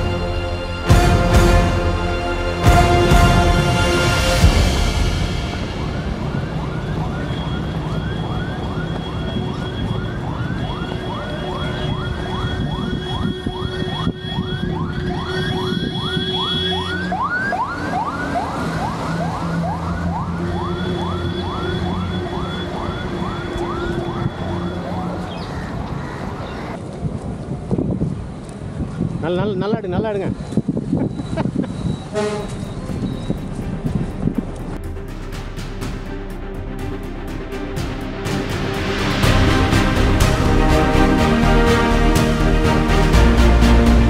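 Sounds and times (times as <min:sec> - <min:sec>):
low vehicle drone: 0:00.0 - 0:12.2, 0:32.1 - 0:44.0
siren yelping: 0:06.4 - 0:25.9.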